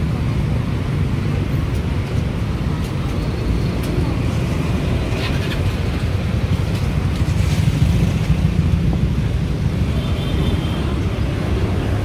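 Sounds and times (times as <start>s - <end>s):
low rumble of street traffic: 0.0s - 12.0s.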